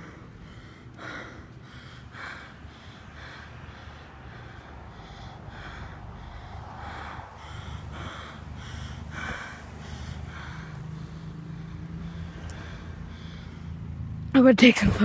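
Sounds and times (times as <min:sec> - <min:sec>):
quick heavy breathing: 0:00.0 - 0:14.2
buses idling hum: 0:00.0 - 0:15.0.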